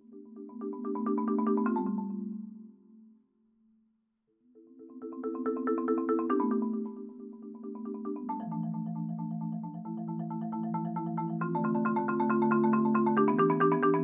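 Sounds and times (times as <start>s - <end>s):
marimba playing rolled chords: 0.1s - 2.7s, 4.8s - 14.0s.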